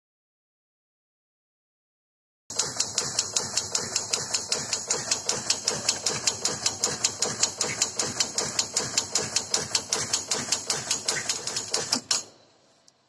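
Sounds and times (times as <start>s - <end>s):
fast even clicking of oil meter: 2.5s - 12.3s.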